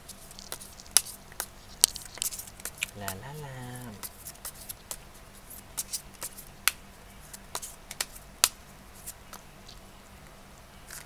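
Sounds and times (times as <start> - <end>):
cards being shuffled: 0.0 - 9.8.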